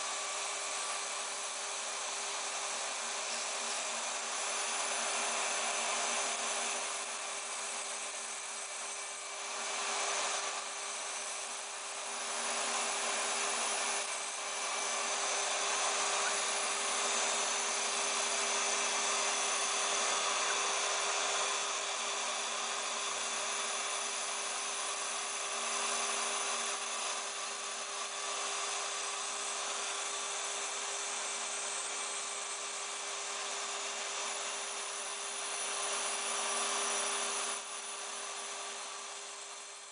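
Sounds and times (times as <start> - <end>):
cutter hissing through foam: 0.0 - 39.9
spindle motor whining: 0.1 - 27.8.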